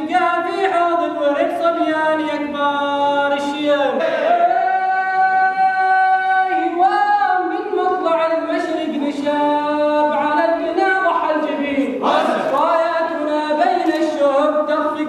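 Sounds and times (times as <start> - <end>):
men chanting in unison: 3.9 - 6.2, 11.5 - 13.6.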